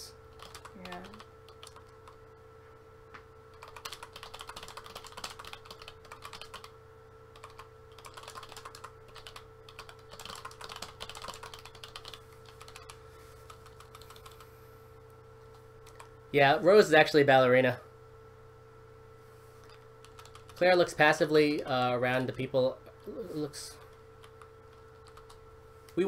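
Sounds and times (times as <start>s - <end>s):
faint steady hum: 0.0s - 26.0s
typing on computer keyboard: 0.3s - 2.2s, 3.5s - 14.4s, 15.8s - 16.1s, 20.0s - 20.6s, 24.2s - 25.4s.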